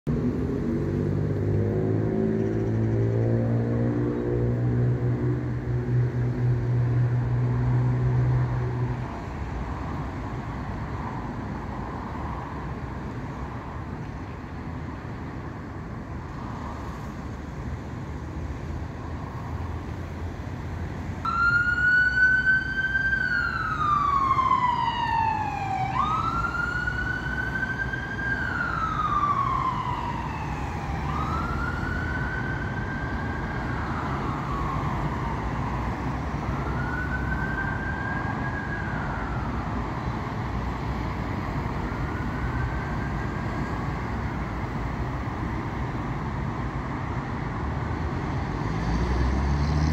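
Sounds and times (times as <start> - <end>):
road traffic: 0.0 - 49.9
ambulance siren wailing: 21.2 - 40.4, 41.4 - 44.8.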